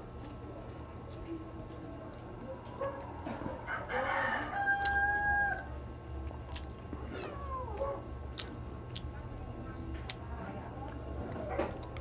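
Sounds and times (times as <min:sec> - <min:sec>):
light clicks of eating: 0:00.0 - 0:12.0
rooster crowing: 0:03.7 - 0:05.7.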